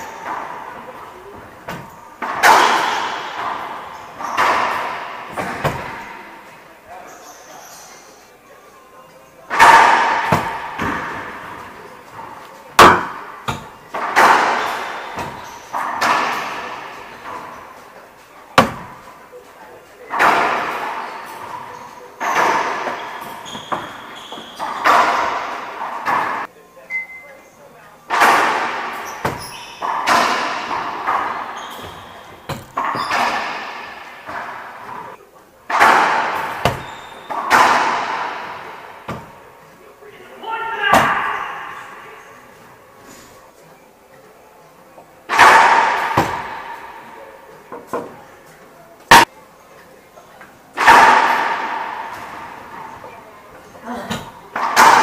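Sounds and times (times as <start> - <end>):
racquet smacking ball: 0.0 - 6.2, 9.5 - 17.6, 18.6 - 19.0, 20.2 - 26.5, 28.1 - 39.5, 45.3 - 47.0, 54.1 - 55.0
ball hitting court walls: 0.0 - 6.4, 9.5 - 19.1, 20.1 - 26.5, 28.1 - 39.5, 40.9 - 41.8, 45.3 - 48.2, 49.1 - 49.3, 50.8 - 55.0.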